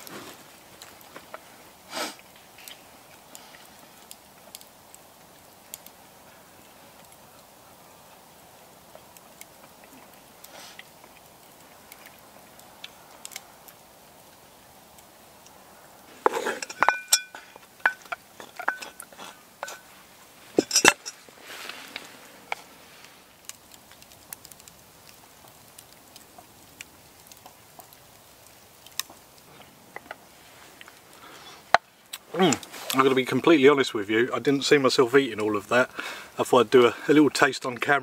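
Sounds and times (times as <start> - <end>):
chewing: 8.9 - 13.8, 15.0 - 33.0
pots and spoon clattering: 16.2 - 19.9, 20.6 - 21.2
spoon scraping and tapping bowl: 16.3 - 19.9.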